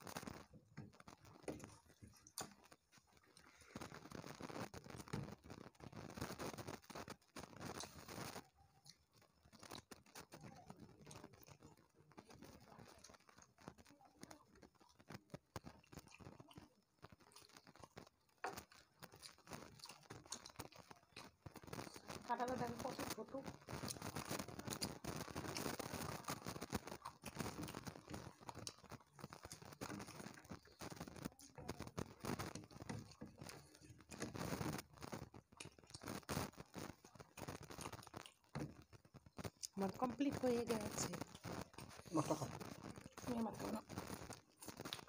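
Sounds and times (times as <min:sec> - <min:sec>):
fingers mixing food on plates: 0:00.0 - 0:45.0
people chewing: 0:00.0 - 0:45.0.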